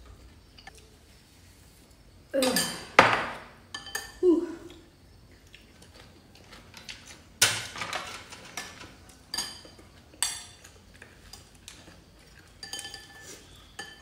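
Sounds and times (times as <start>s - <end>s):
utensils clinking on ceramic bowls: 2.4s - 4.2s, 6.4s - 14.0s.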